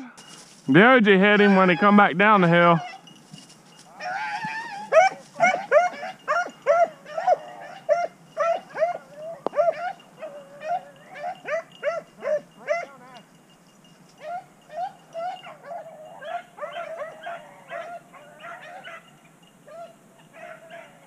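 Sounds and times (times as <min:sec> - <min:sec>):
hound baying: 0:00.0 - 0:13.4, 0:14.1 - 0:21.0
dog yelping barks: 0:02.8 - 0:03.1, 0:04.0 - 0:13.2, 0:14.2 - 0:21.0.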